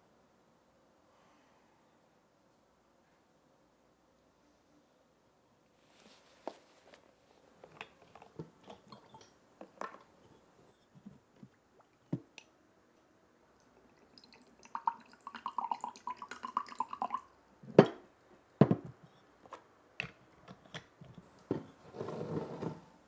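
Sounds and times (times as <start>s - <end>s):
liquid pouring and gurgling: 13.7s - 17.3s
glass knocks on wooden table: 18.6s - 18.9s.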